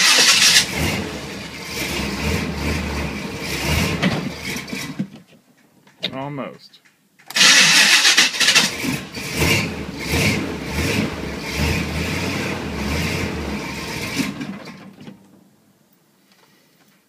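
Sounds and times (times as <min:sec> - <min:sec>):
engine running rough in surges: 0:00.0 - 0:05.0, 0:07.4 - 0:14.8.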